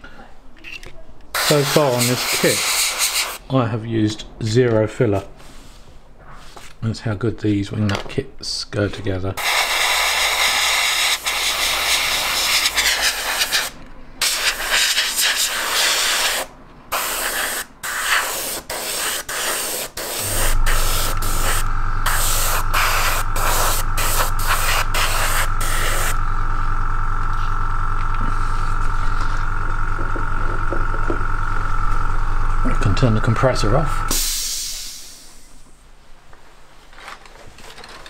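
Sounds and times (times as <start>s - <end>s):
airbrush spraying hiss: 1.4s - 3.4s, 9.4s - 26.3s, 34.1s - 35.6s
compressor hum and whine: 9.3s - 36.3s.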